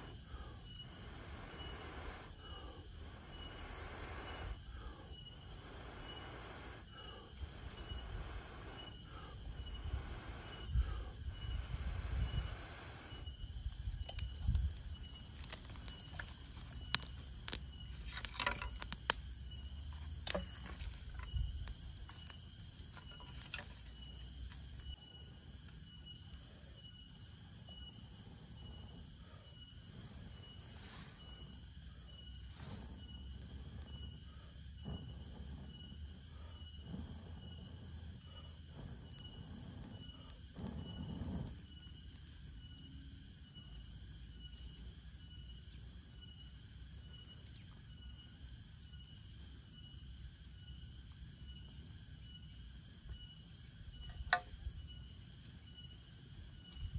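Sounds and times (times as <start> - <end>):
man blowing breaths: 0.0 - 13.5
dry tinder crackling: 0.0 - 45.0
insects pulsing call: 0.0 - 56.9.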